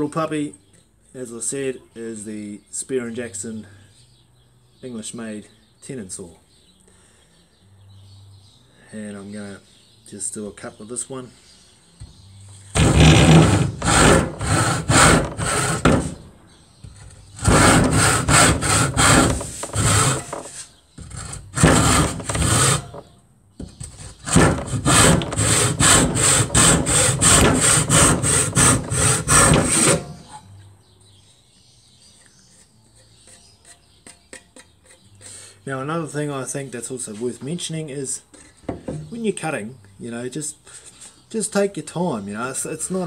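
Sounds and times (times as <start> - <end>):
hand saw cutting wood: 12.7 - 16.3, 16.9 - 23.1, 23.7 - 30.4.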